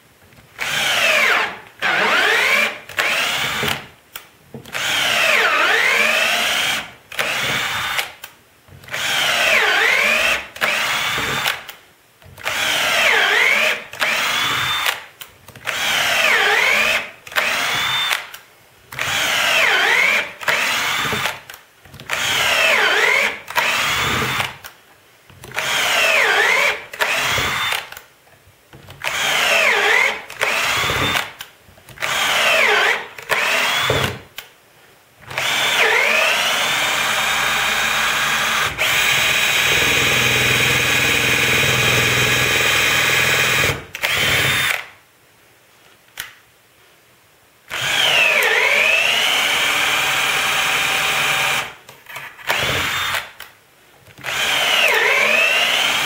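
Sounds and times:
power drill driving screws: 0:00.6 - 0:03.8, 0:04.7 - 0:08.2, 0:08.8 - 0:11.7, 0:12.4 - 0:15.0, 0:15.6 - 0:18.3, 0:19.0 - 0:24.6, 0:25.5 - 0:28.0, 0:29.0 - 0:31.4, 0:32.0 - 0:34.2, 0:35.3 - 0:44.9, 0:47.7 - 0:53.4, 0:54.2 - 0:56.0.

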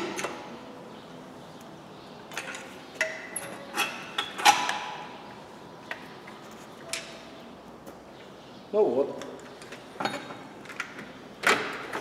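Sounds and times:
metal clunks and clinks: 0:10.0 - 0:12.0.

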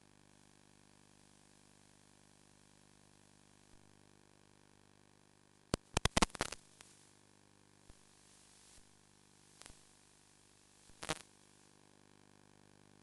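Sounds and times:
recording static hiss and hum: 0:00.0 - 0:13.0
sharp crackling clicks: 0:05.7 - 0:06.6, 0:11.0 - 0:11.3.

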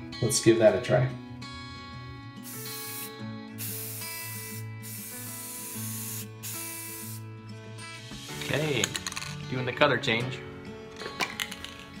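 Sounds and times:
spray paint can hissing: 0:02.4 - 0:07.3.

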